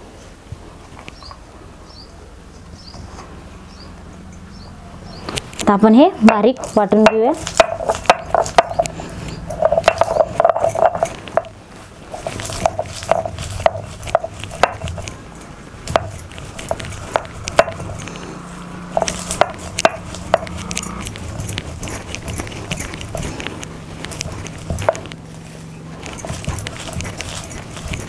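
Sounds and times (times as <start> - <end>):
stone roller grinding nuts: 5.6 - 28.0.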